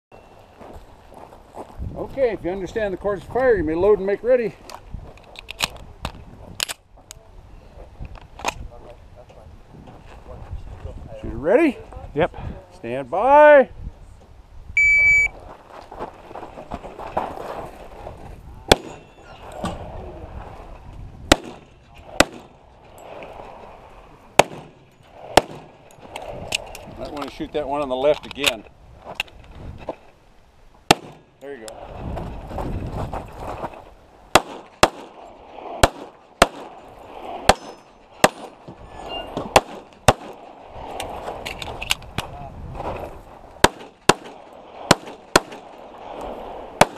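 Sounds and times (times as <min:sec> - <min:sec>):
scuffling footsteps: 0:00.4 - 0:02.3, 0:15.3 - 0:18.4, 0:32.0 - 0:34.0
shot timer beep: 0:14.8 - 0:15.3
pistol gunshot: 0:18.7 - 0:19.0, 0:21.3 - 0:22.5, 0:24.4 - 0:25.7, 0:30.9 - 0:31.3, 0:34.3 - 0:35.1, 0:35.8 - 0:36.7, 0:39.5 - 0:40.4, 0:43.6 - 0:45.7
soft gunshot crack: 0:24.4 - 0:25.7.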